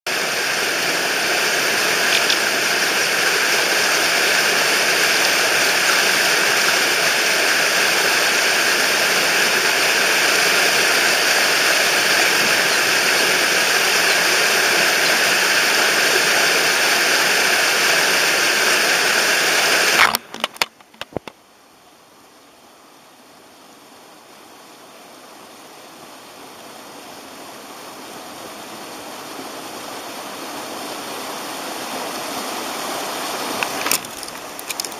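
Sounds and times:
rushing mountain stream: 0:00.1 - 0:34.9
camera knocked over: 0:20.0 - 0:21.3, 0:33.6 - 0:34.9.

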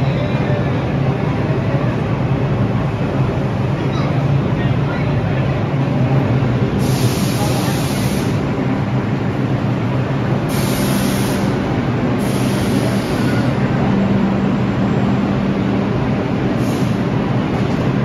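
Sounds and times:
subway train running on track: 0:00.0 - 0:18.0.

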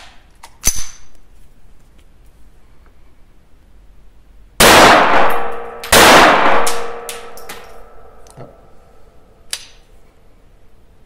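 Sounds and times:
pistol slide metallic clicks: 0:00.0 - 0:01.2
pistol shots ringing: 0:04.6 - 0:08.2.

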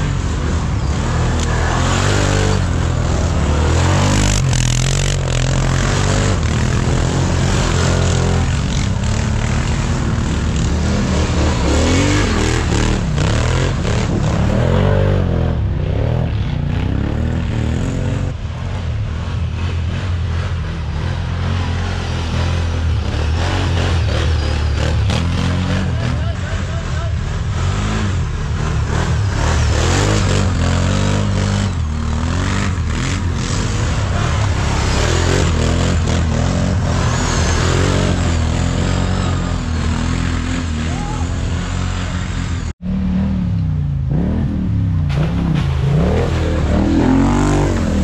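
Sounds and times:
quad bike engines revving: 0:00.0 - 0:48.0
knocks and scrapes on dirt: 0:45.0 - 0:48.0.

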